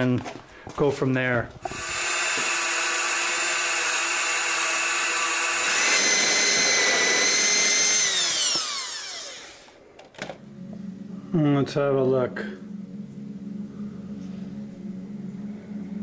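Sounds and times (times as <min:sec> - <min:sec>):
electric drill whining through metal: 0:01.6 - 0:09.8.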